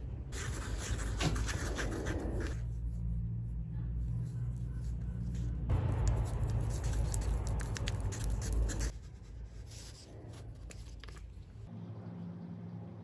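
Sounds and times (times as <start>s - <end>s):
stir stick scraping plastic cup: 0.4s - 2.9s.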